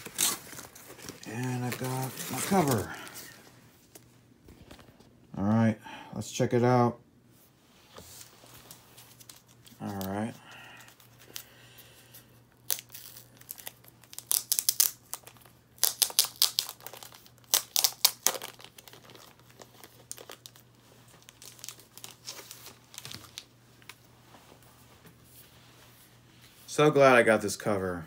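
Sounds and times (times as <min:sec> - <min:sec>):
plastic sleeve crinkling: 0:00.0 - 0:04.1, 0:08.1 - 0:11.6, 0:12.6 - 0:24.1.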